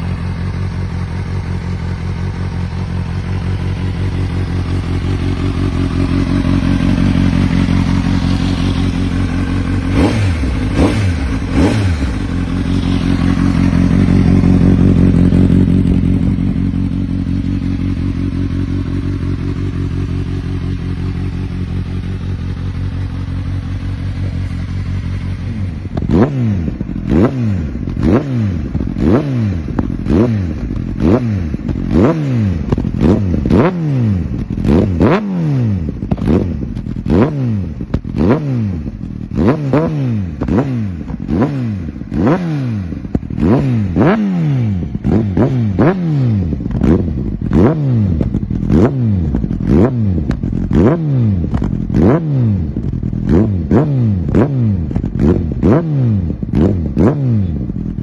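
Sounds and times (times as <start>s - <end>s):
motorcycle engine revving: 0.0s - 58.0s
exhaust pops and crackles: 25.9s - 26.2s, 32.6s - 33.7s, 36.0s - 37.2s, 37.8s - 38.2s, 48.2s - 50.8s, 51.4s - 52.0s, 54.2s - 55.6s.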